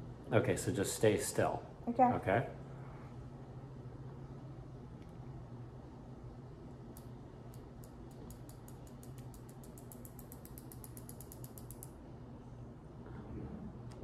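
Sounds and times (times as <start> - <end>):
injection pen ratchet clicks: 6.9 - 12.0.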